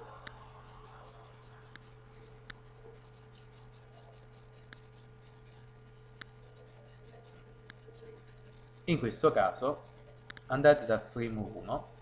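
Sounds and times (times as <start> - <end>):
low electrical hum: 0.0 - 12.0
computer mouse clicks: 4.6 - 5.0.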